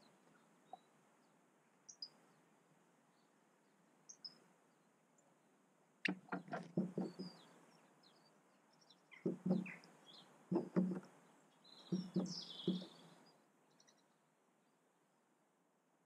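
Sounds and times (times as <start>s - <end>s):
faint high bird chirps: 0.0s - 2.2s, 4.1s - 4.4s, 6.0s - 14.2s
bird pecking at feeder: 10.5s - 11.1s.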